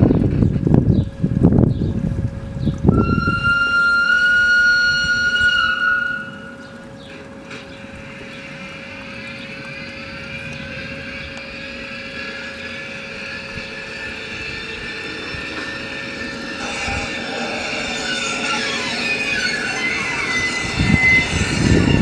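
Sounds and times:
electric locomotive hum and whine: 0.0 - 22.0
model train horn blast: 2.9 - 6.6.

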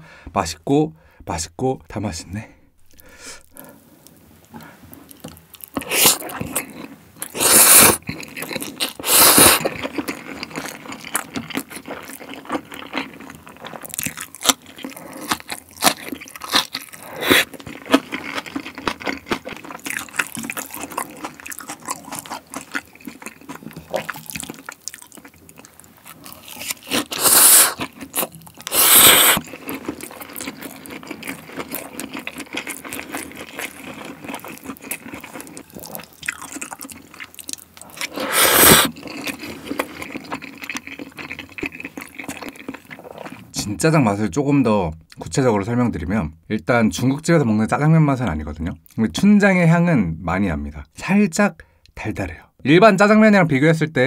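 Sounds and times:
wet chewing and lip smacks: 5.0 - 43.5
loud noodle slurps: 5.8 - 6.7, 7.3 - 8.1, 8.8 - 9.9, 17.0 - 17.6, 26.6 - 27.9, 28.6 - 29.5, 38.0 - 39.4.

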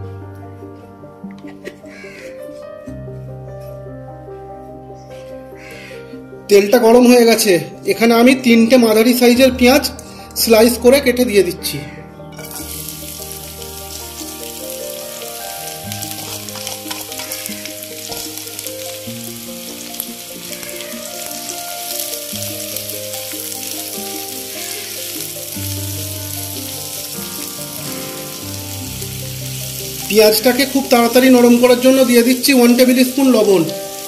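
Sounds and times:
soft background music: 0.0 - 34.0
onions sizzling in a frying pan: 12.4 - 34.0
spatula stirring: 15.9 - 19.0.

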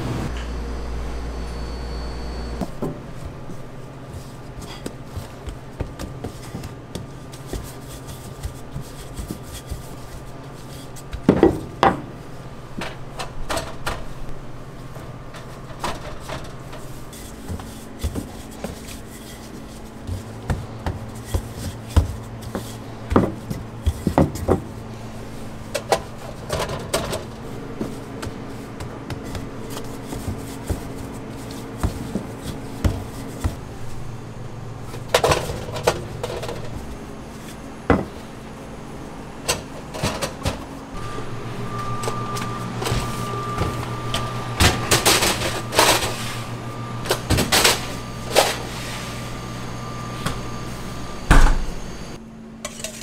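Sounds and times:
machine hum: 0.0 - 53.0
hands handling dough and tins: 2.6 - 11.8, 14.8 - 34.0.

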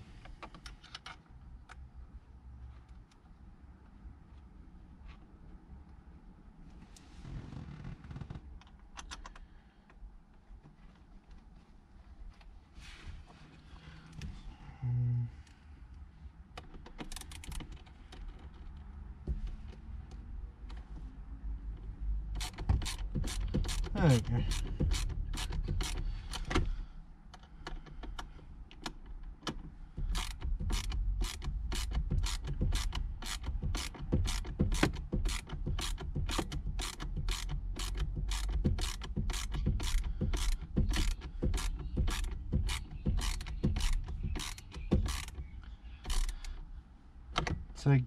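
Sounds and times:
hand ratchet clicking: 22.4 - 26.6, 30.0 - 46.6.

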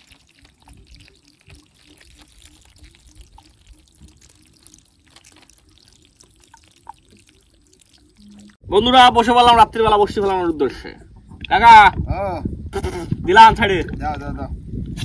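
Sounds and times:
faint trickle of river water: 0.0 - 8.6
water dripping: 0.0 - 8.6.

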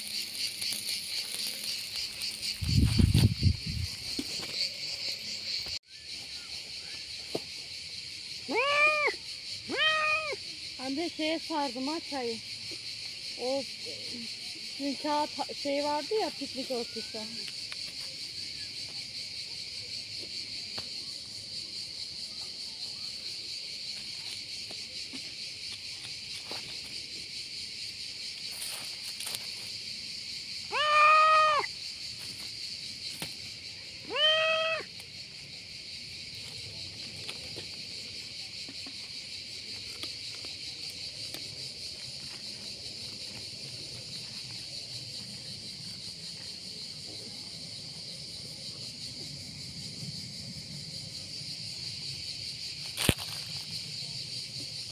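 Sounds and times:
crickets chirring: 0.0 - 54.9
cat meowing: 8.5 - 10.4, 30.7 - 31.7, 34.1 - 34.9.

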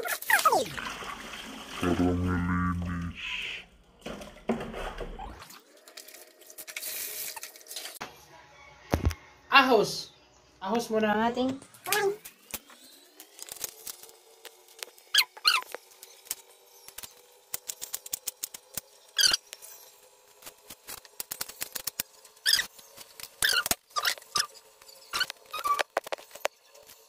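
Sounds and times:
short squeaks: 15.1 - 15.8, 19.2 - 19.5, 22.4 - 22.7, 23.4 - 26.0.

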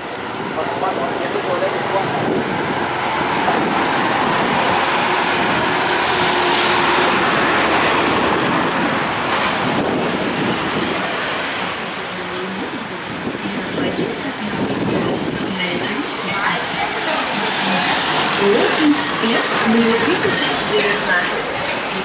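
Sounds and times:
street traffic passing: 0.0 - 22.0.

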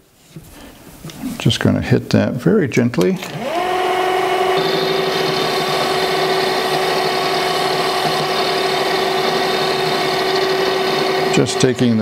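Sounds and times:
metal lathe motor whine: 3.2 - 12.0.

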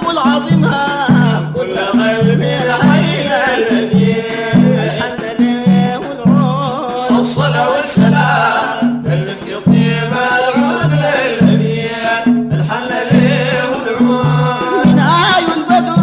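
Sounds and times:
hand drum rhythm: 0.0 - 16.0
men singing: 0.0 - 16.0.

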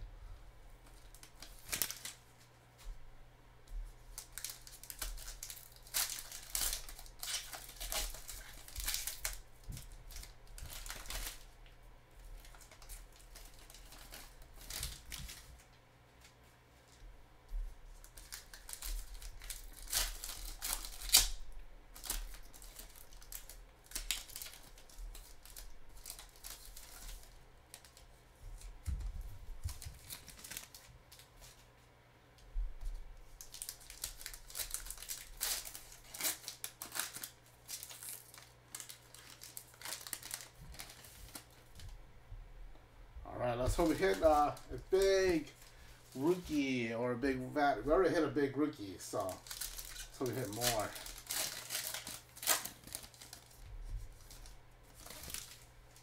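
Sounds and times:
card pack wrappers tearing and crinkling: 0.8 - 2.5, 4.1 - 11.6, 12.3 - 15.7, 18.0 - 28.1, 29.6 - 31.6, 33.4 - 41.9, 43.6 - 46.8, 47.4 - 56.0
cards shuffling: 49.2 - 53.6.

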